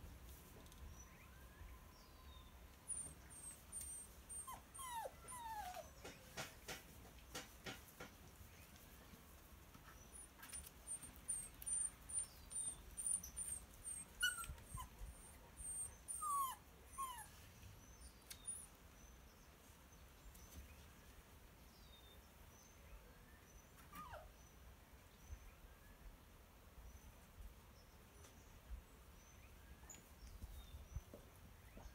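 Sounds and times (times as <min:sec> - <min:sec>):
puppy whimpering: 0:02.9 - 0:06.1, 0:10.2 - 0:17.3, 0:23.9 - 0:24.3.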